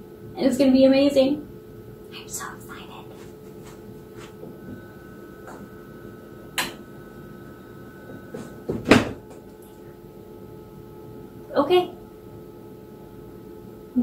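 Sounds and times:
steady machine hum: 0:00.0 - 0:14.0
lid shutting thump: 0:08.7 - 0:09.2.

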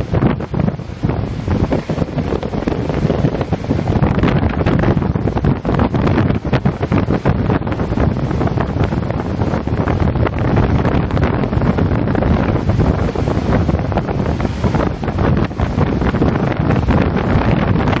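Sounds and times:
heavy waves breaking: 0:00.0 - 0:18.0
wind buffeting microphone: 0:00.0 - 0:18.0.

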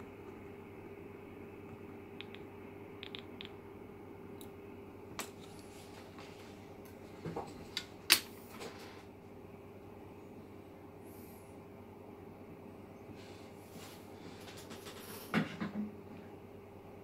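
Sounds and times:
faint steady hum: 0:00.0 - 0:17.0
tools clicking and tapping: 0:02.2 - 0:03.6.

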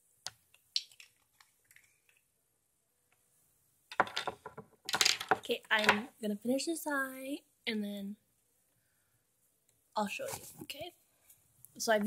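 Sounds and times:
rustling and bumping of handling: 0:03.9 - 0:06.1.

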